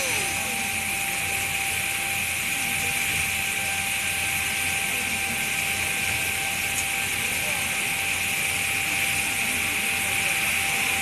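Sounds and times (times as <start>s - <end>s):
fountain water spraying: 0.0s - 11.0s.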